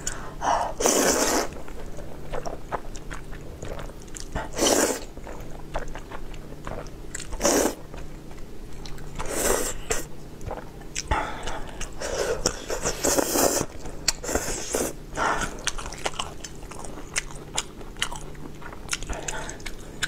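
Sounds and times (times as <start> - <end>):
slurping noodles: 0.8 - 1.6, 4.4 - 5.1, 7.4 - 7.8, 12.0 - 13.7
soft chewing and smacking: 1.5 - 20.0.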